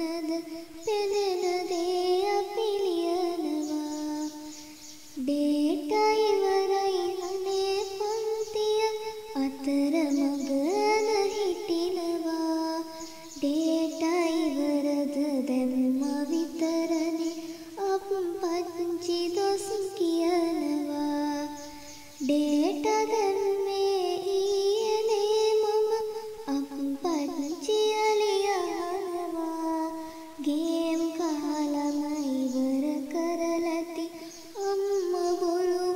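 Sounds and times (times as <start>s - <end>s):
high voice singing: 0.0s - 35.9s
singer breaths: 30.0s - 30.4s.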